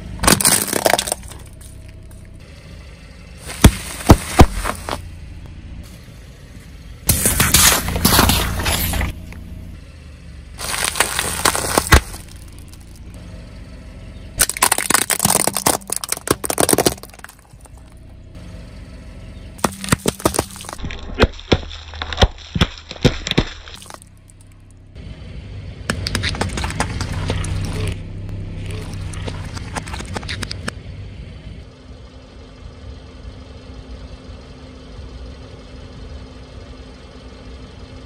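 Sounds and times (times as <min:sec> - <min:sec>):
tyre crushing brittle objects: 0:00.0 - 0:02.2, 0:03.4 - 0:05.0, 0:07.1 - 0:09.2, 0:10.6 - 0:13.0, 0:14.4 - 0:18.0, 0:19.6 - 0:24.2, 0:25.9 - 0:28.0
low hum: 0:00.0 - 0:38.0.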